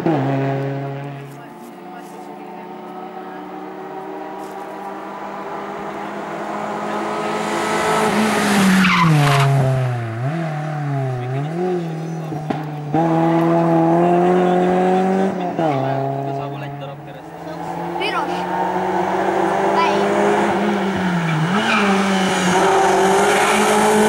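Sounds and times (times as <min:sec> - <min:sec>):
rally car engine at high revs: 0:00.0 - 0:24.0.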